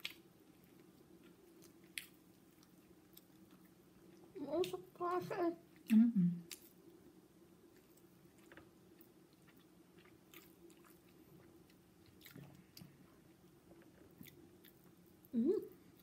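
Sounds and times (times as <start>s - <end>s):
faint clicks and smacks: 0.0s - 4.8s, 7.8s - 15.3s
person chewing food: 0.0s - 4.8s, 7.6s - 15.3s
low steady hum: 0.0s - 16.0s.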